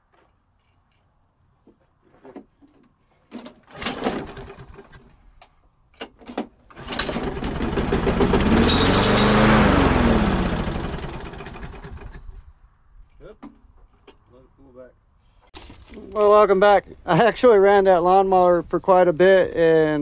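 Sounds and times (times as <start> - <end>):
lawn mower pull-start cranking: 3.4 - 5.2, 6.0 - 12.4
lawn mower engine running: 3.7 - 5.1, 6.7 - 12.4.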